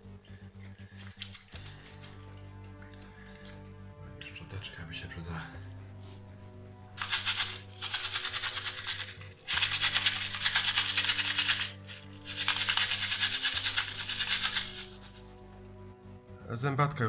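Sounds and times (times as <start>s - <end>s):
brush scrubbing plastic gear: 7.0s - 15.2s.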